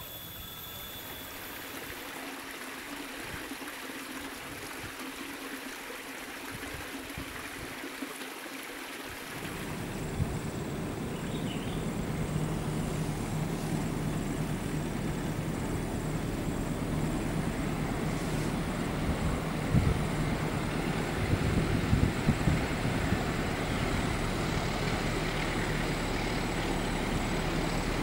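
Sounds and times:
low steady hum: 0:09.4 - 0:28.0.

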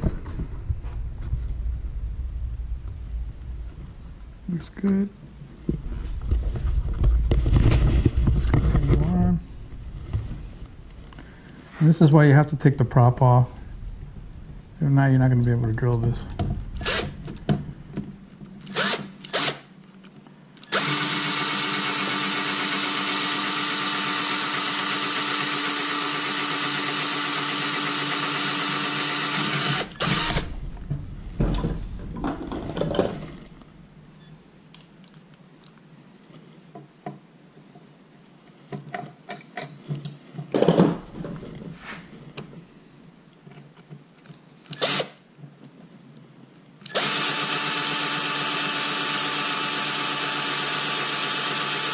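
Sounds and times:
cordless drill boring through metal: 0:16.8 - 0:17.2, 0:18.6 - 0:19.6, 0:20.6 - 0:30.5, 0:44.7 - 0:45.2, 0:46.8 - 0:51.9
clicks and knocks: 0:30.4 - 0:33.7.

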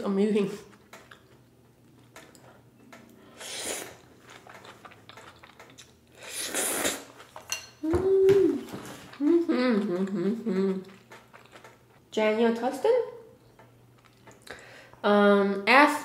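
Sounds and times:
noodle slurping: 0:03.3 - 0:07.3
person humming mm: 0:07.8 - 0:10.9.

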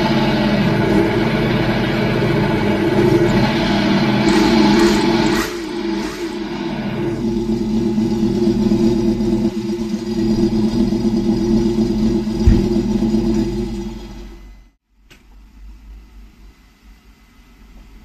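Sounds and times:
brief low thump: 0:12.4 - 0:12.8.

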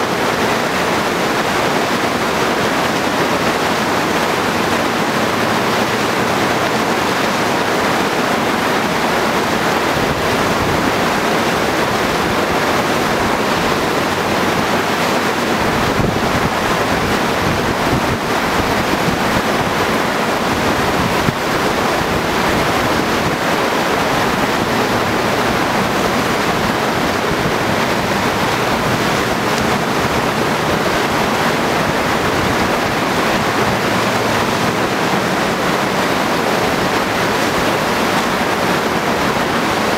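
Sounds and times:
whitewater rushing: 0:00.0 - 0:39.9
wind on microphone: 0:08.9 - 0:39.9.

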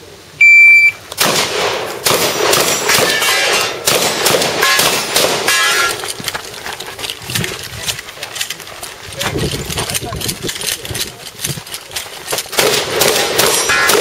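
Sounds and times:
shot timer beep: 0:00.4 - 0:01.0
shotgun shots: 0:01.2 - 0:06.0, 0:12.5 - 0:14.0.

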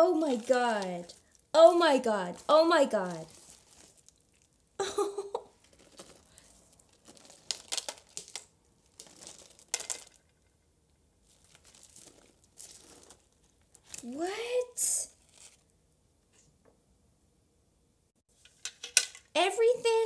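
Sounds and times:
plastic mailer bag crinkling: 0:00.0 - 0:10.3, 0:11.2 - 0:14.1.

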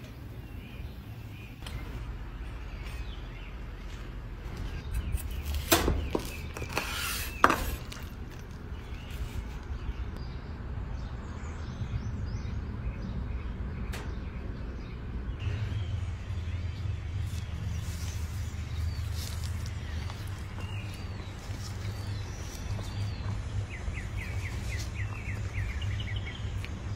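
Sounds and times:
steady low rumble: 0:00.0 - 0:06.6, 0:08.0 - 0:26.9
utensil scraping griddle: 0:05.4 - 0:08.1.

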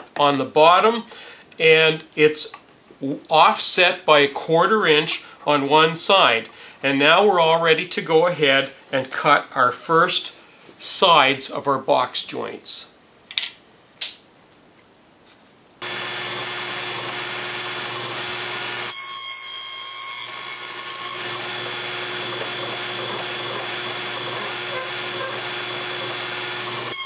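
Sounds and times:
table saw cutting wood: 0:15.8 - 0:27.0.

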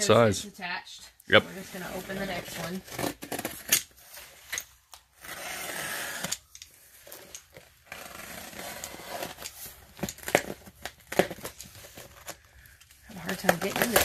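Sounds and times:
cardboard scraping and rustling: 0:01.5 - 0:04.5, 0:05.2 - 0:12.5, 0:13.2 - 0:14.0
packing tape and cardboard tearing: 0:01.6 - 0:14.0.

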